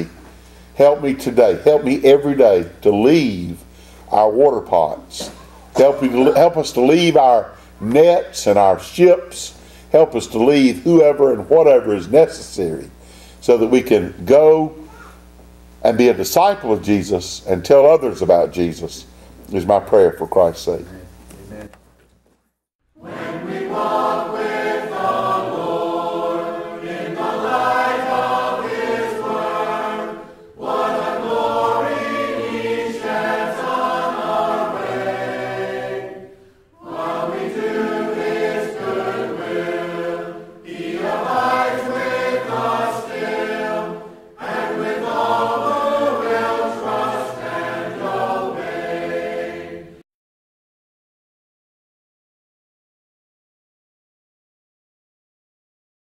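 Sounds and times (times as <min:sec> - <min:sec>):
choir singing a hymn: 0:00.8 - 0:03.5, 0:04.1 - 0:12.7, 0:23.0 - 0:50.0.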